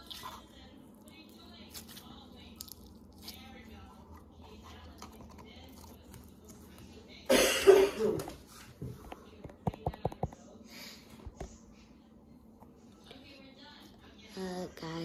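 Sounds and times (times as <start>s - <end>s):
person coughing: 7.3s - 8.3s.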